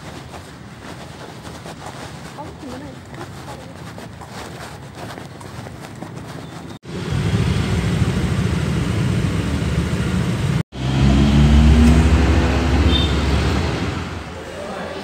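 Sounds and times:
traffic engines rumbling: 0:00.0 - 0:15.0
low engine hum: 0:06.8 - 0:14.3.

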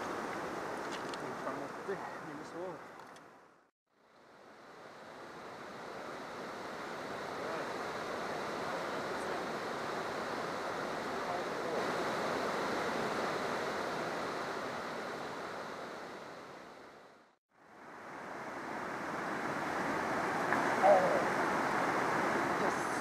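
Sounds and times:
river rapids rushing: 0:04.8 - 0:17.0, 0:17.8 - 0:23.0.

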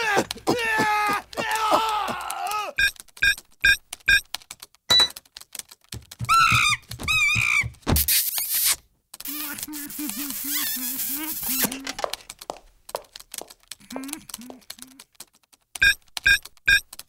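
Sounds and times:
run of clicks: 0:01.2 - 0:07.0, 0:11.4 - 0:17.0
cartoon monkey chirps: 0:06.5 - 0:11.7.

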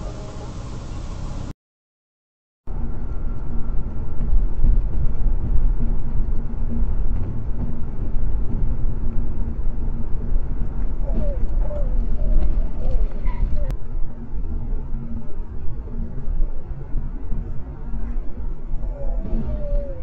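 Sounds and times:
car road and engine rumble: 0:02.7 - 0:20.0.

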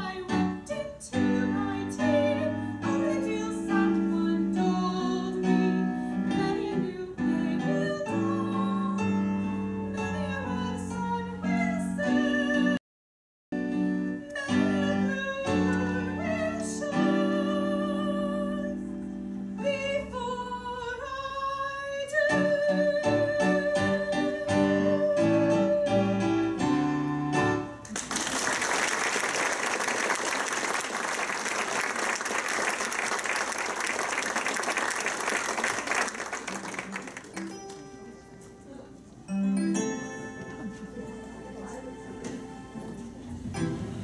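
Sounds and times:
audience applauding: 0:27.8 - 0:37.8
instrumental accompaniment: 0:36.4 - 0:44.0.

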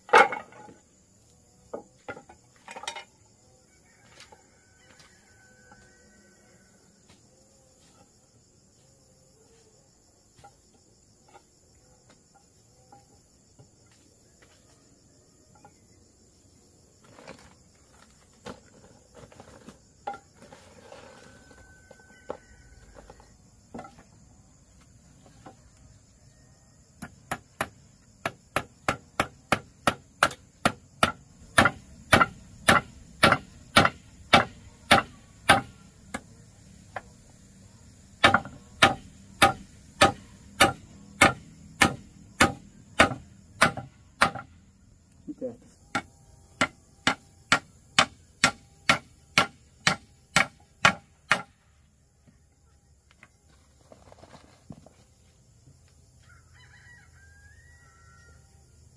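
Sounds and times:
crickets chirring: 0:00.0 - 0:58.9
hammer blows on wood: 0:27.3 - 0:35.8.

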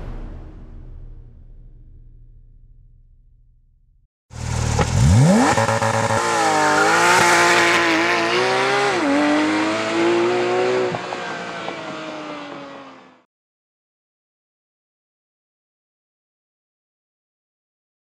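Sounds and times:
sports car engine revving: 0:04.3 - 0:13.0.

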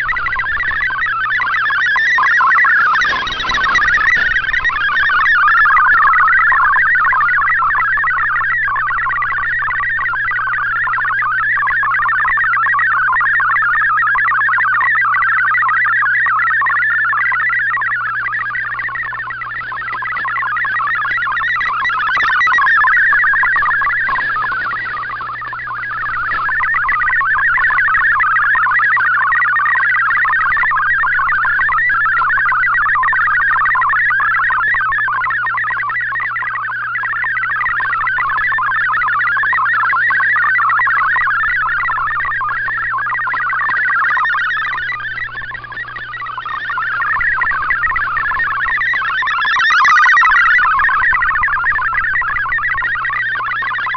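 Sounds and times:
warbling digital data signal: 0:00.0 - 0:53.9
steady low hum: 0:16.5 - 0:53.9.

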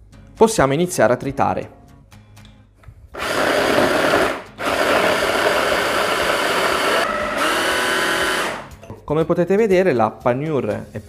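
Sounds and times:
electric chopper grinding food: 0:03.2 - 0:08.7.

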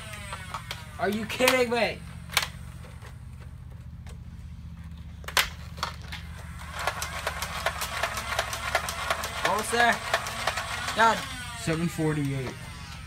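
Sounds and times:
low hum: 0:00.0 - 0:11.8
plastic snap: 0:05.2 - 0:06.2.

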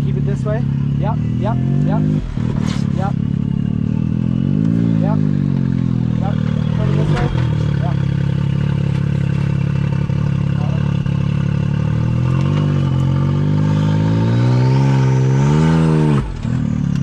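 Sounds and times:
off-road vehicle engine revving: 0:00.0 - 0:17.0.

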